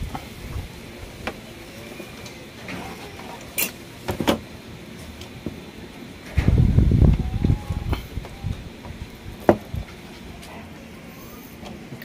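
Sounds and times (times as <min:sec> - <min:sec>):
knocks and clunks of tv handling: 0:04.1 - 0:04.4.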